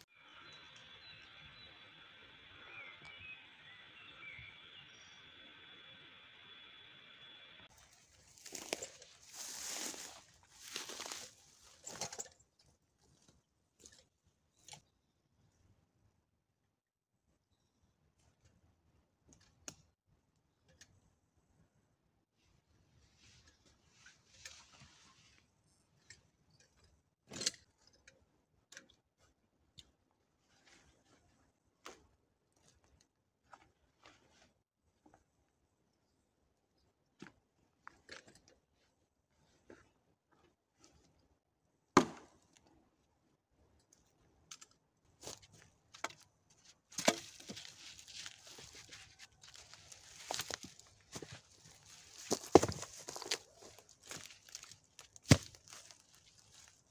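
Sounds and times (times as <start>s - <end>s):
pine needles and twigs rustling: 7.7s - 14.7s, 45.2s - 56.9s
backpack thudding on ground: 52.3s - 53.3s.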